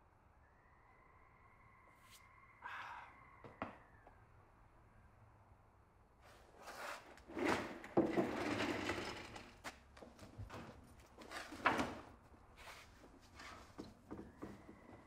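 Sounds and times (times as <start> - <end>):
footsteps on concrete floor: 9.6 - 11.5.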